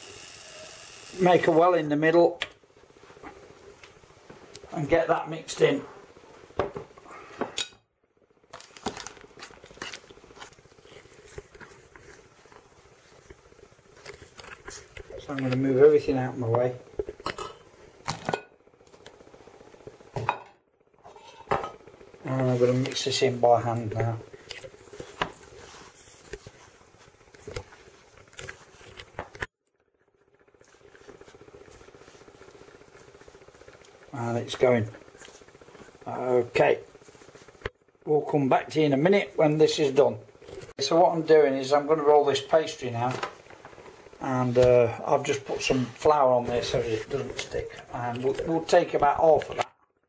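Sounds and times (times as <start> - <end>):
faint steady hum: 0.0 - 50.0
hands rubbing dough: 9.2 - 16.6, 22.2 - 29.5, 30.4 - 37.6.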